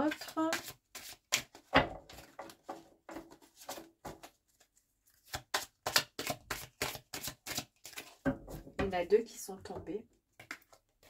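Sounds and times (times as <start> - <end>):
cards being shuffled: 0.1 - 8.2, 10.4 - 11.0.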